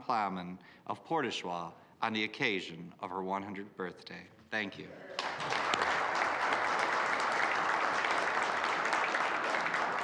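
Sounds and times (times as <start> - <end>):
many people clapping: 5.0 - 10.0.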